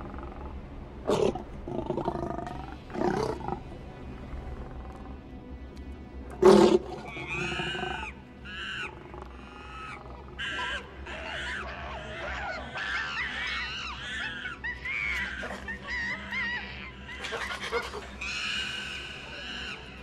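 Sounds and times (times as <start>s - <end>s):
chimpanzees screeching and hooting: 6.4s - 20.0s
loud chimpanzee cry: 6.6s - 20.0s.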